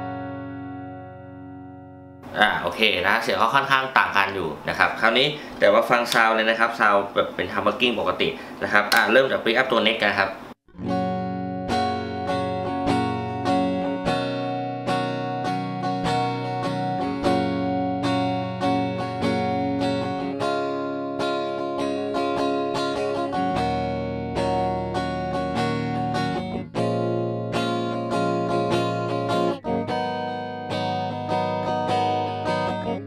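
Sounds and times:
clean electric guitar: 0:00.0 - 0:02.7, 0:10.7 - 0:33.0.

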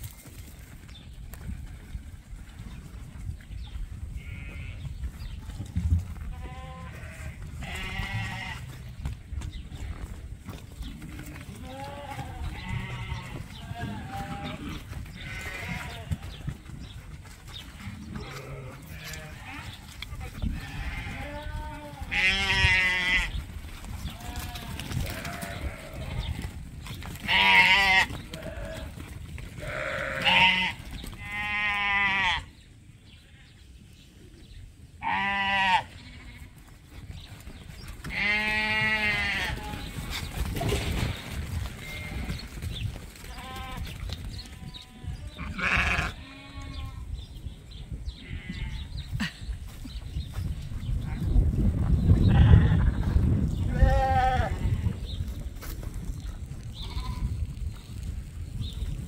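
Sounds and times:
sheep bleating: 0:04.2 - 0:04.8, 0:06.3 - 0:08.7, 0:11.2 - 0:16.1, 0:18.2 - 0:23.4, 0:27.3 - 0:28.9, 0:29.6 - 0:32.5, 0:35.0 - 0:36.5, 0:38.1 - 0:39.9, 0:44.6 - 0:46.9.

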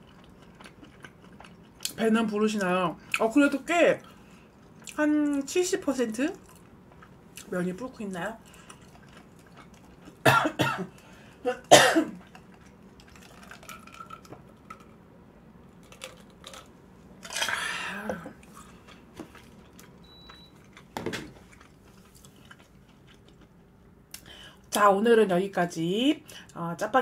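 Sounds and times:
quiet chewing: 0:00.0 - 0:02.0, 0:06.3 - 0:07.5, 0:08.4 - 0:10.2, 0:12.1 - 0:15.0, 0:15.7 - 0:24.4.

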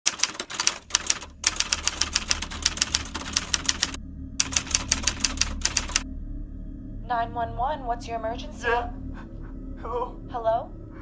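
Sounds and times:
typewriter keys striking: 0:00.0 - 0:06.0.

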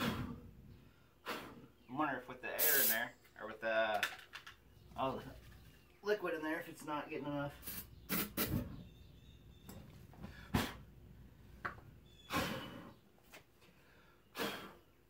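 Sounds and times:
air hose hissing: 0:02.6 - 0:03.1, 0:07.6 - 0:08.6.

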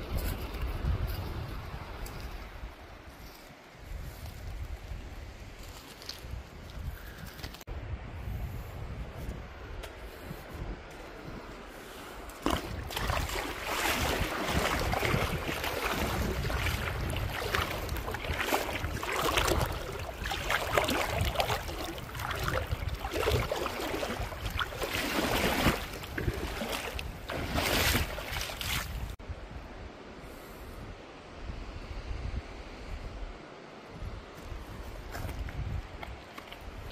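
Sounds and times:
river water splashing over rock: 0:12.4 - 0:29.1.

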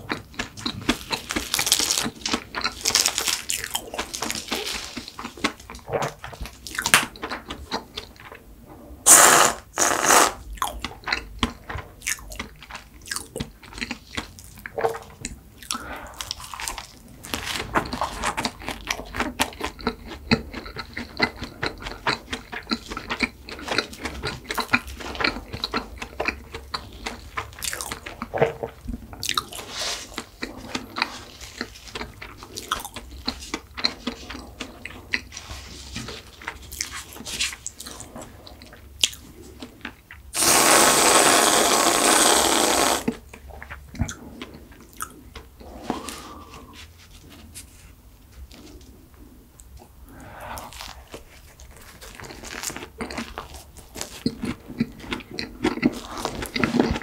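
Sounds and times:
pastry crunching and chewing: 0:00.0 - 0:08.4, 0:10.4 - 0:40.7, 0:50.6 - 0:57.0.

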